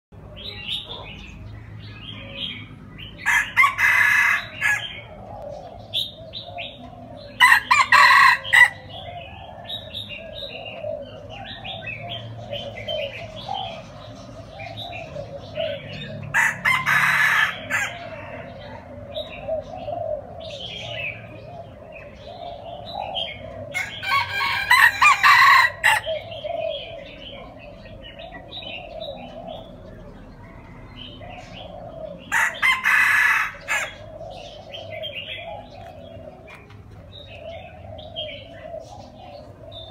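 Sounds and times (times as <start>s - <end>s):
bird chirps and calls: 0.2s - 39.9s
rooster crowing: 3.2s - 4.9s, 7.4s - 8.8s, 16.3s - 18.2s, 23.8s - 26.0s, 32.3s - 34.0s.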